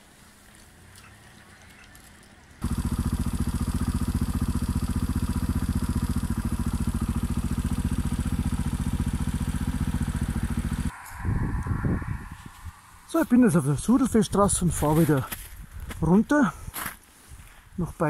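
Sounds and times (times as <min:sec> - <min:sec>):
motorcycle engine pulsing exhaust: 0:00.9 - 0:14.9.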